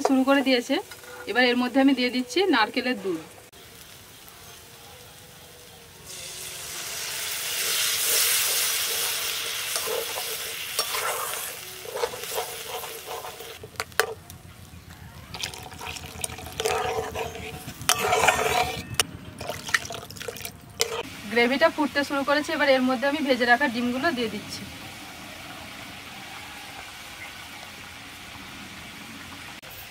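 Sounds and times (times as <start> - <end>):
spatula scraping a pan: 0.9 - 1.4, 7.6 - 14.2, 15.8 - 19.6, 20.8 - 21.1
liquid sizzling in a hot wok: 2.7 - 14.2, 15.3 - 29.9.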